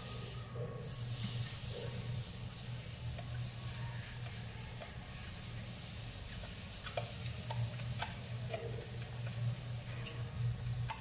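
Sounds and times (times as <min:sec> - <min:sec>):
steady low hum: 0:00.0 - 0:11.0
faint clicks and taps: 0:04.2 - 0:11.0.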